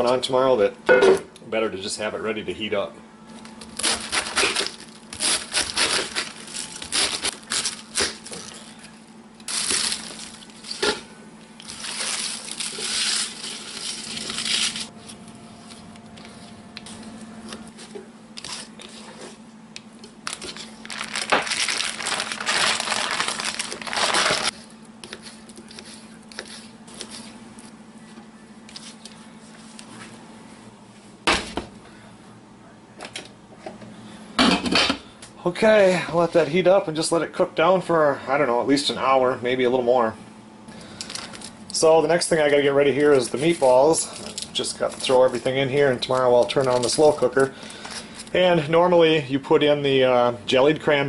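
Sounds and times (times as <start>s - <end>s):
faint steady hum: 0.0s - 51.0s
cabbage leaves tearing: 3.7s - 10.8s, 11.6s - 15.2s, 20.2s - 27.3s.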